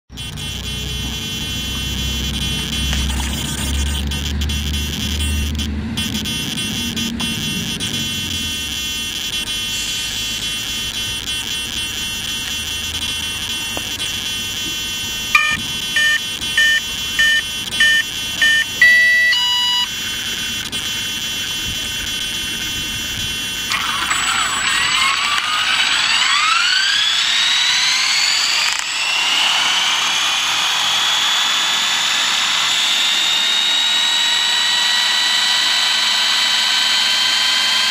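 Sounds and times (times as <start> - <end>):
short electronic beeps: 0.1 - 29.8
high multi-tone whine: 0.1 - 37.9
motor spinning up: 0.2 - 37.9.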